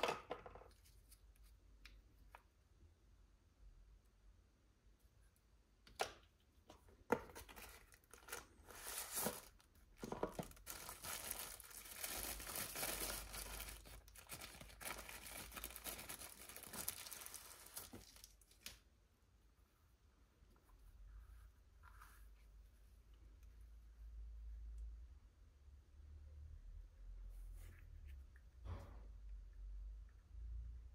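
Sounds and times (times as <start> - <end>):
plastic wrapping crinkling: 7.5 - 18.8.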